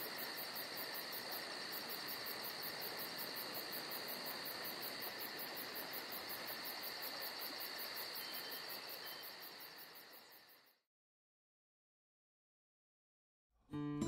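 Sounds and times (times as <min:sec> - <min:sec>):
insects chirping: 0:00.0 - 0:10.9.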